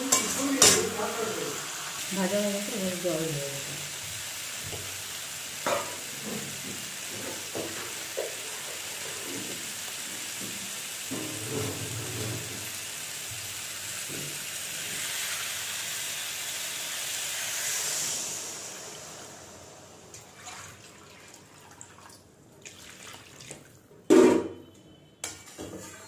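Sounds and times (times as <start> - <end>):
steel spatula scraping pan: 0.0 - 1.0, 24.6 - 26.0
vegetables sizzling in oil: 0.0 - 20.2
water hissing in hot pan: 0.0 - 20.3.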